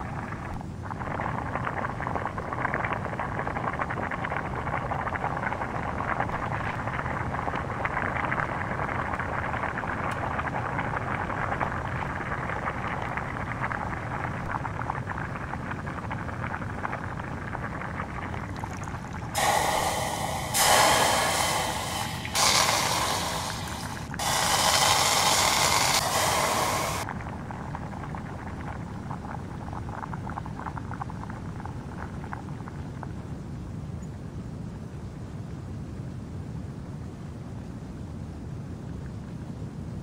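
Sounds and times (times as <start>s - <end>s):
loud rushing hisses: 19.3s - 27.1s.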